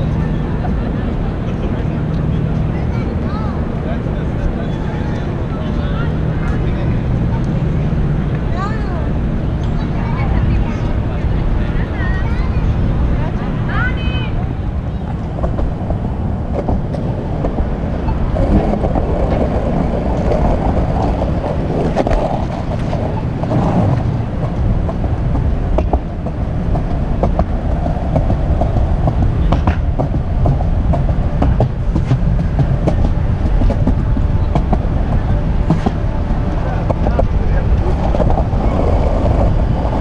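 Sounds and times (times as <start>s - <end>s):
heavy rumble: 0.0s - 40.0s
street traffic: 0.0s - 40.0s
sharp clacks: 18.5s - 36.1s.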